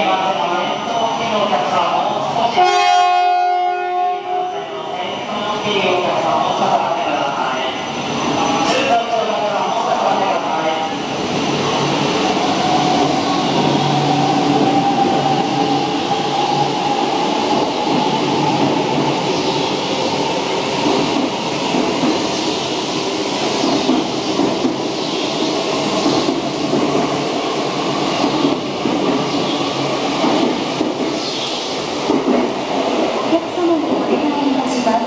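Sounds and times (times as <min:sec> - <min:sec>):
train wheels rumbling on rail: 0:07.8 - 0:35.0.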